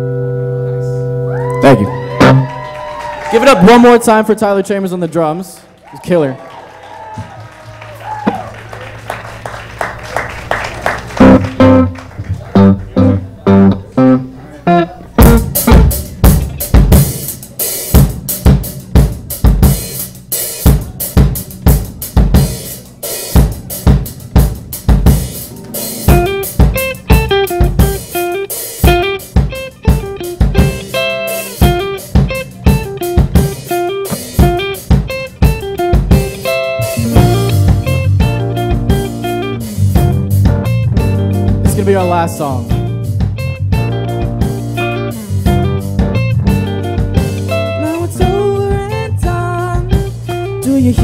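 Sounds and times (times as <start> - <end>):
sustained electric guitar chords: 0.0 - 2.6, 9.4 - 19.8, 23.8 - 51.0
electric guitar melodic line: 0.0 - 3.2, 9.0 - 51.0
drum kit snare and bass drum: 15.2 - 51.0.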